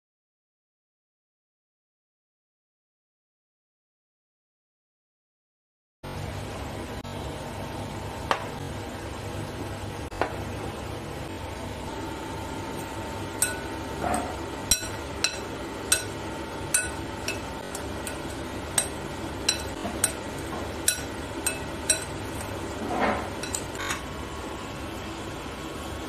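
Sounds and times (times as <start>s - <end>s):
fork clinking against glass bowl: 12.8s - 24.0s
fork scraping glass bowl: 12.8s - 24.0s.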